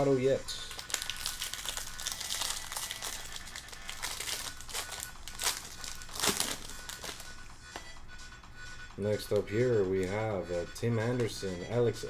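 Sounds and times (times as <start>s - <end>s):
foil wrapper crinkling: 0.5s - 7.3s.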